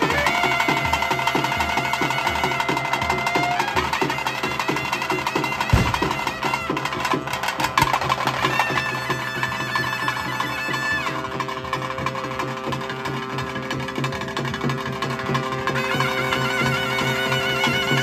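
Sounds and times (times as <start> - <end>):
steady drum beat: 0.0 - 17.2
wind instrument sustained notes: 0.0 - 18.0
heavy drum hit: 5.6 - 7.0.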